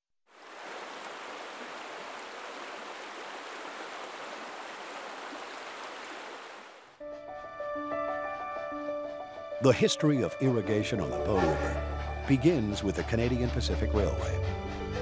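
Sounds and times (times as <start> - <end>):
flowing water rushing: 0.3 - 7.0
music with held notes: 7.0 - 15.0.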